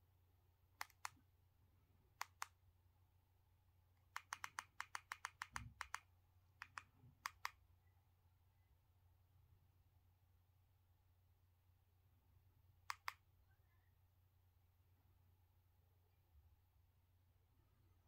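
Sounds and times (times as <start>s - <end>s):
quiet room hum: 0.0s - 18.0s
sharp clicks: 0.8s - 1.2s, 4.1s - 7.6s, 12.9s - 13.2s.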